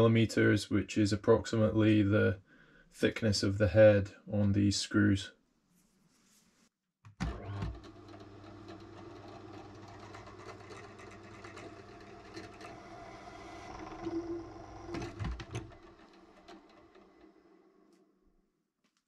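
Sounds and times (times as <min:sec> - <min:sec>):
drill press motor hum: 0:07.2 - 0:18.2
drill bit scraping steel: 0:08.1 - 0:18.0.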